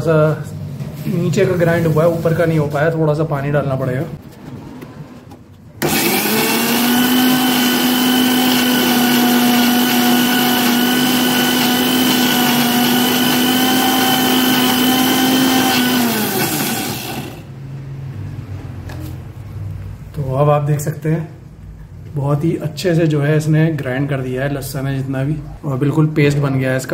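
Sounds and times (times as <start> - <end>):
mixer grinder motor whine: 5.8 - 17.5.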